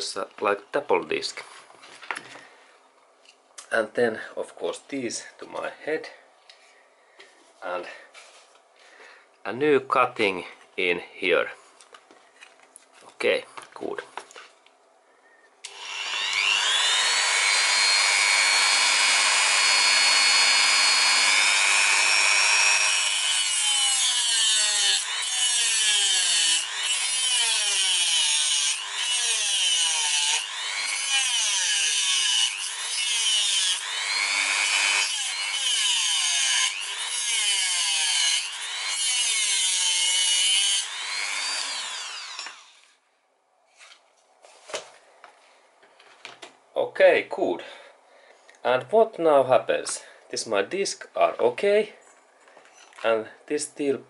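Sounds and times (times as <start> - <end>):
rotary tool whining: 15.6 - 37.7, 38.3 - 43.0
cutting disc grinding metal: 15.7 - 42.8.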